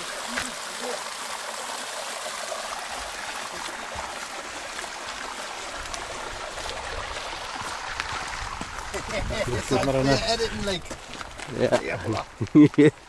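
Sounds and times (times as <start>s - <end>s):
water running over a weir: 0.0s - 13.0s.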